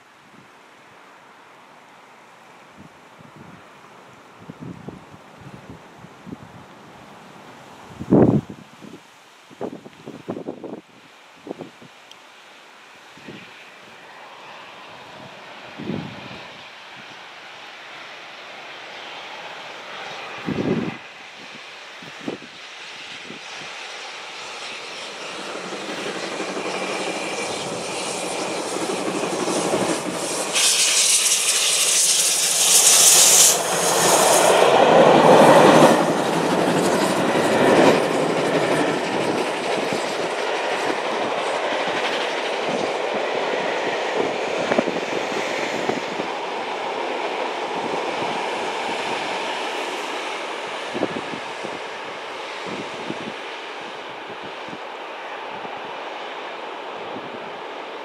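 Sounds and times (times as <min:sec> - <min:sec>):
steam locomotive passing: 0:09.6 - 0:58.0
steam hiss: 0:12.6 - 0:58.0
train wheels clickety-clack: 0:23.0 - 0:53.8.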